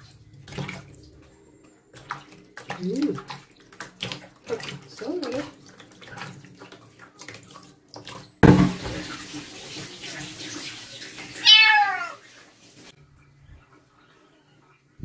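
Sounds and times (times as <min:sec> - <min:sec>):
water splashing in plastic basin: 0:00.0 - 0:12.4
water rushing into metal sink: 0:00.0 - 0:12.9
kitten meowing: 0:11.4 - 0:12.2.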